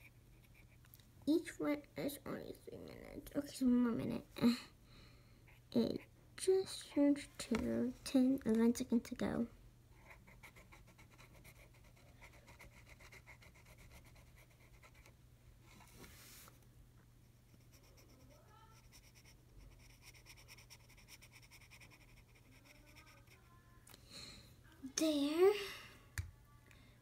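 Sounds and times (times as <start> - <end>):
marker scratching on paper: 17.5 - 23.4.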